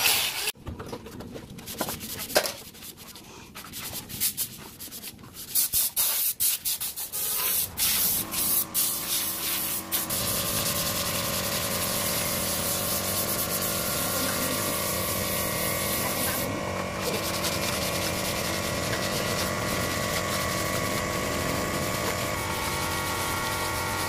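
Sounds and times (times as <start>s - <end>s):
sandpaper scratching wood: 1.7s - 24.0s.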